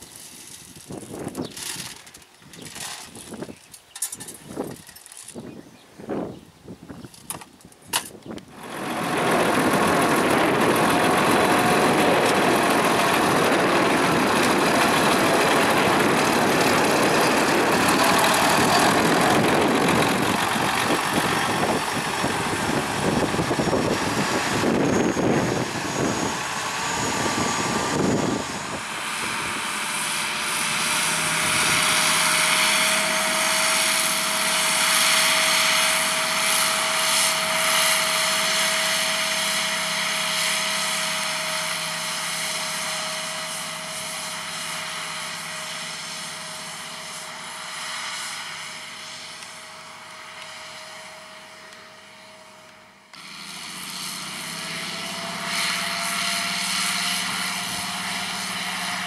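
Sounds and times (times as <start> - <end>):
tractor diesel engine running: 0.0 - 5.4, 8.4 - 59.0
steady whine: 7.1 - 59.0.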